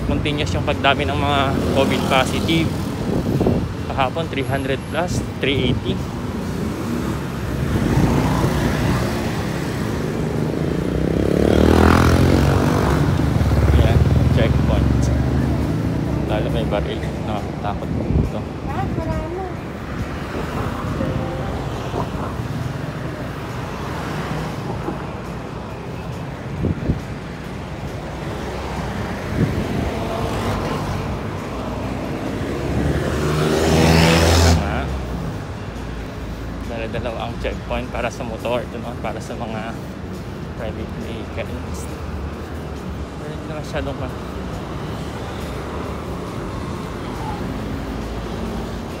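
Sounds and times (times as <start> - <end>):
highway traffic rumble: 0.0 - 49.0
small motorcycles passing by: 7.8 - 16.7.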